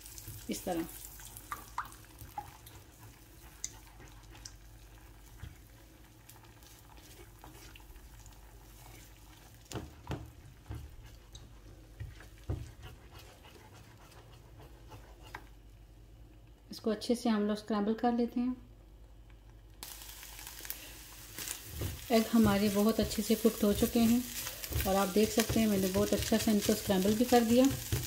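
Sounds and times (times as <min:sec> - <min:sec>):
eggs frying in butter: 0:00.0 - 0:15.7, 0:19.8 - 0:28.0
spatula scraping a pan: 0:10.7 - 0:15.5.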